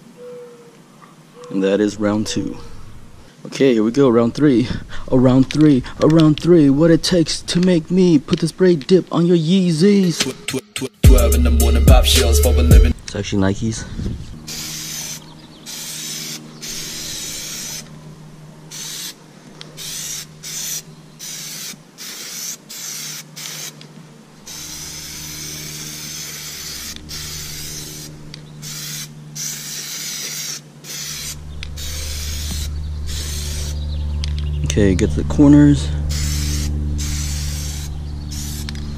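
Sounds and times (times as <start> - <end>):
aerosol can spraying: 14.5 - 17.9, 18.7 - 23.9, 24.5 - 33.8, 36.1 - 38.9.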